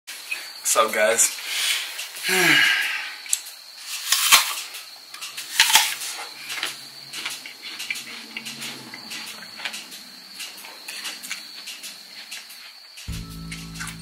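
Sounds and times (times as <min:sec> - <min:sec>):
crunchy chewing: 0:04.0 - 0:12.8.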